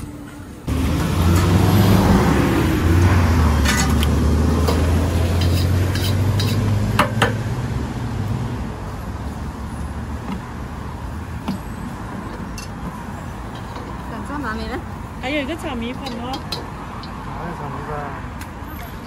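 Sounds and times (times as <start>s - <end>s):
gas burner roaring: 0.6s - 14.1s
food sizzling: 3.6s - 6.9s
metal utensil clanking on wok: 3.6s - 7.4s, 15.9s - 17.2s.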